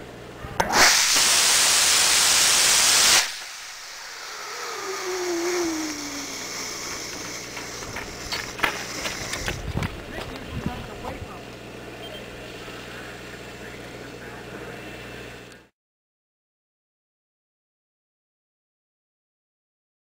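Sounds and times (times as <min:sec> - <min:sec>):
rocket motor hissing: 0:00.6 - 0:09.9
faint falling tone: 0:03.8 - 0:07.6.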